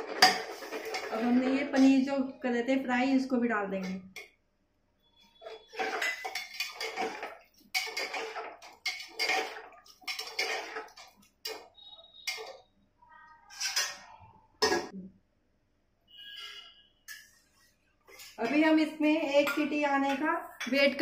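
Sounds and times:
spoon clattering in pot: 0:00.0 - 0:01.1, 0:05.7 - 0:12.7, 0:13.5 - 0:14.9.

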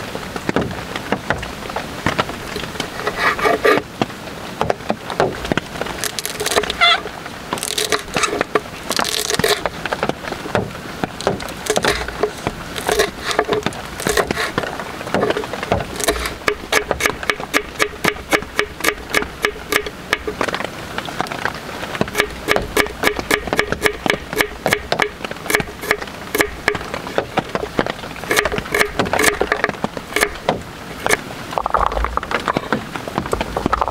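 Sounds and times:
knife chopping on wooden board: 0:11.3 - 0:14.6, 0:15.2 - 0:20.3, 0:22.0 - 0:27.3, 0:28.3 - 0:29.6, 0:30.2 - 0:31.2.

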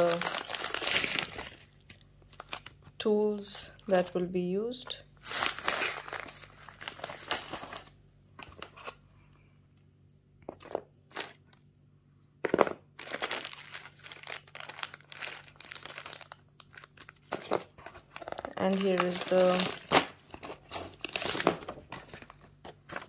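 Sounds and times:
plastic bags crinkling: 0:00.0 - 0:02.8, 0:05.2 - 0:07.9, 0:13.0 - 0:23.0.

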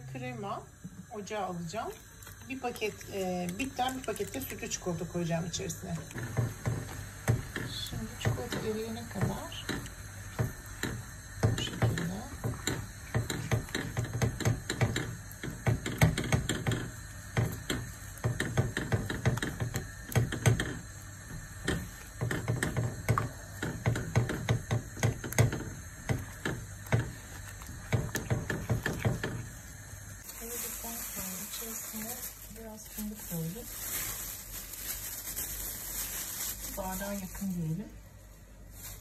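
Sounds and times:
spatula stirring in a pan: 0:02.0 - 0:29.8.

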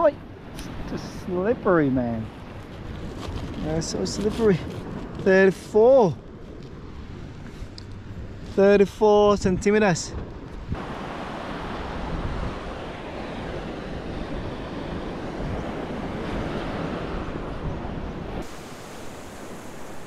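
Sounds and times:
surf washing on beach: 0:00.0 - 0:20.0
wind buffeting microphone: 0:09.2 - 0:20.0.

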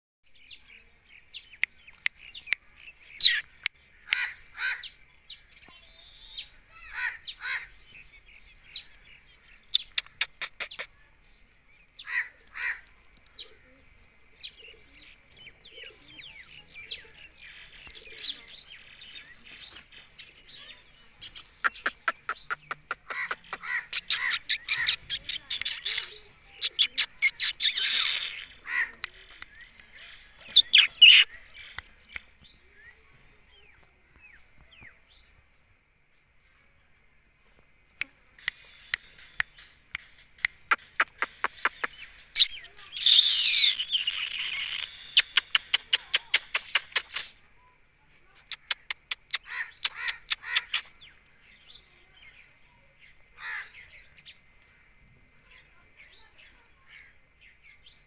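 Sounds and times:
parakeet chirping and calling: 0:03.2 - 0:05.0, 0:09.7 - 0:11.0, 0:21.4 - 0:29.1, 0:29.9 - 0:31.8, 0:38.4 - 0:47.4, 0:48.5 - 0:51.0
rapid clicking chatter: 0:21.2 - 0:32.2, 0:38.3 - 0:47.4, 0:48.4 - 0:51.0.

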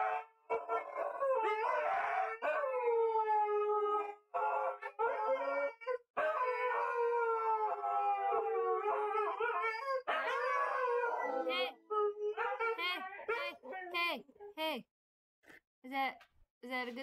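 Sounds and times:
dogs howling: 0:00.0 - 0:13.9.

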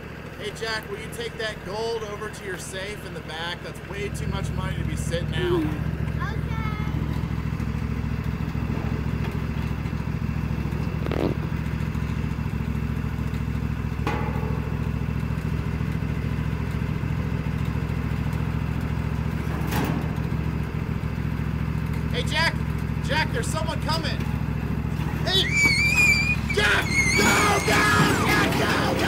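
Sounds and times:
lawn tractor engine idling: 0:00.0 - 0:29.0
metal cart clanks: 0:14.0 - 0:16.4, 0:19.4 - 0:20.7, 0:24.2 - 0:29.0.

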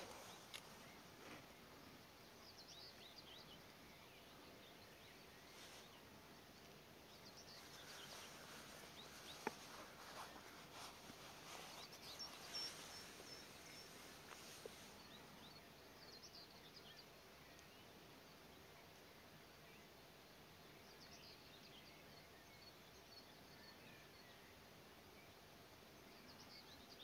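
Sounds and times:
faint click: 0:00.0 - 0:01.4, 0:17.5 - 0:17.8
distant songbirds chirping: 0:00.0 - 0:27.0
quiet outdoor hiss: 0:00.0 - 0:27.0.

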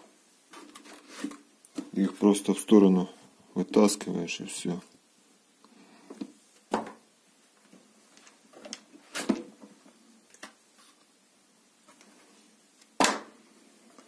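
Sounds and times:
cardboard scraping and rustling: 0:00.5 - 0:02.4.

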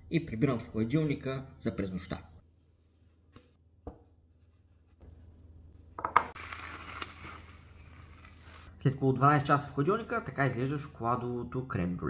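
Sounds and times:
ramekin knocking on wooden board: 0:06.0 - 0:06.3
cling film crinkling: 0:06.4 - 0:08.7.

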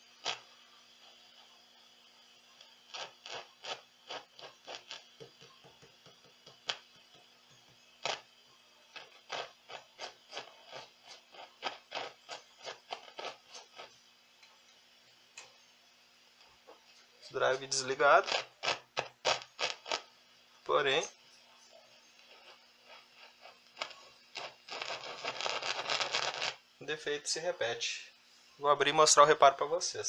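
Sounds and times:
amplifier speaker crackling: 0:02.6 - 0:07.2, 0:08.0 - 0:08.3, 0:17.5 - 0:20.0, 0:22.2 - 0:26.6.

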